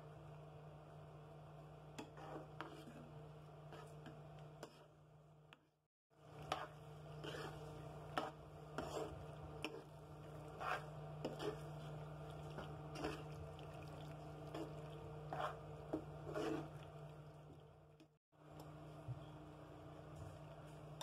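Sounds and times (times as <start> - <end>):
spoon scraping a pan: 2.0 - 4.9, 6.4 - 17.0
low steady hum: 6.2 - 21.0
wet squelching of pasta in sauce: 8.8 - 17.7.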